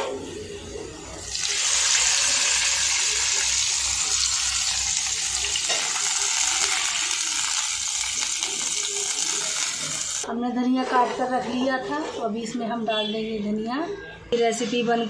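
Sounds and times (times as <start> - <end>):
hot oil sizzling in liquid: 1.0 - 10.2.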